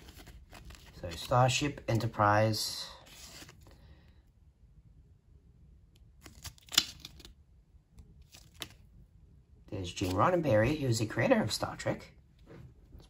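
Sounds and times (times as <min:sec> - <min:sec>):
book pages rustling: 0:00.0 - 0:02.1, 0:03.0 - 0:03.8, 0:08.2 - 0:08.9, 0:09.8 - 0:10.8.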